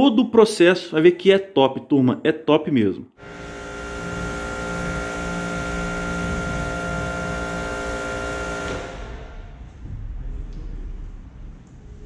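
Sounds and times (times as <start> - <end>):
pressure washer humming: 3.2 - 9.6.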